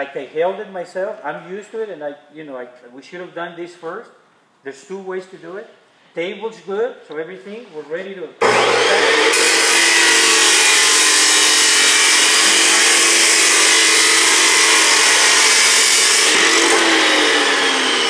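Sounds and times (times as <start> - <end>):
chop saw grinding steel: 8.4 - 18.0
motor whine: 16.3 - 18.0.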